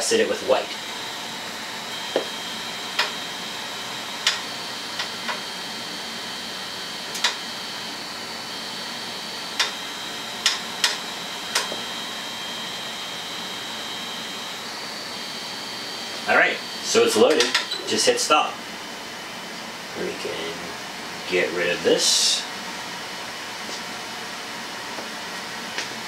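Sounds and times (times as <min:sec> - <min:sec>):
printer fan noise: 0:00.0 - 0:26.0
stepper motor whine: 0:00.0 - 0:26.0.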